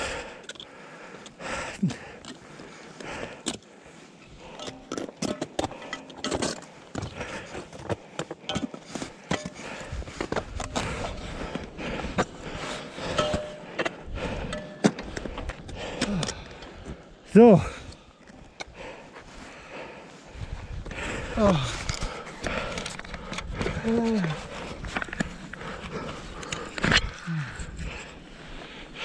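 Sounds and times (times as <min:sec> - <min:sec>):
climbing gear clinking on rock: 0:00.4 - 0:18.8, 0:21.3 - 0:28.2
wind rumble on microphone: 0:20.3 - 0:22.1.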